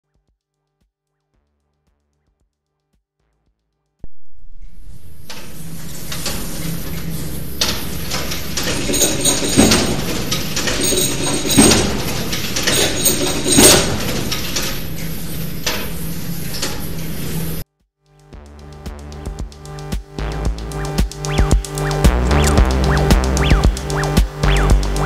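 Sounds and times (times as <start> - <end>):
steady low hum: 4.0 - 17.6, 19.2 - 25.0
clock mechanism knocking: 4.1 - 17.6, 21.0 - 25.0.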